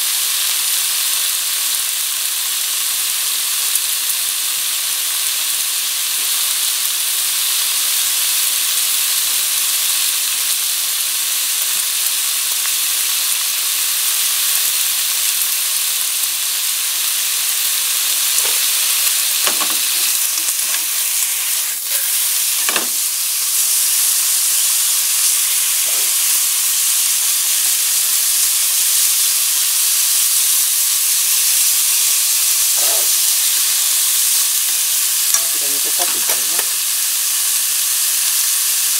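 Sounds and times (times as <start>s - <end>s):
meat sizzling in a frying pan: 0.0s - 38.9s
chopsticks knocking on pan: 19.4s - 19.8s.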